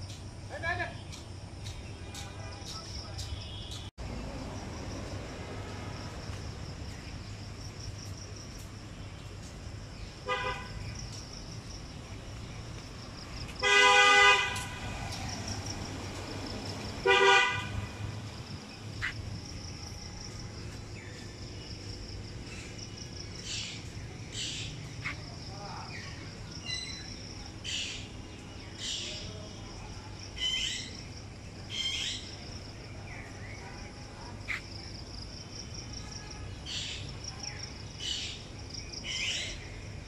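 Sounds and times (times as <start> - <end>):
vehicle horn honking: 10.2 - 10.8, 13.6 - 14.9, 17.0 - 18.0.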